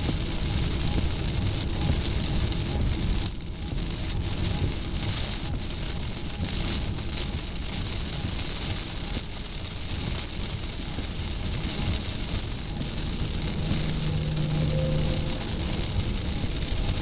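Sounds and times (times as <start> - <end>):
heavy rain on car: 0.0 - 17.0
tyre and engine noise: 10.1 - 17.0.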